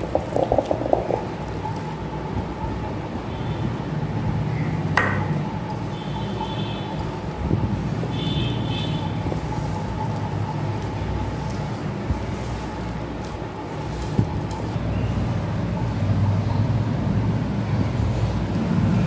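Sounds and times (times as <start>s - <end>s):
hands kneading dough in bowl: 0.0s - 2.8s, 4.9s - 17.0s.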